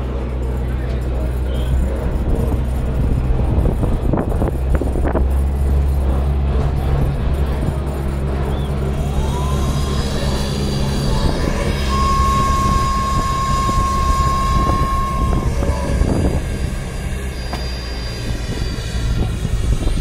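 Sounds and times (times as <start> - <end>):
jet turbine whine: 0.0 - 20.0
low hum: 0.0 - 20.0
whistling tone: 8.4 - 20.0.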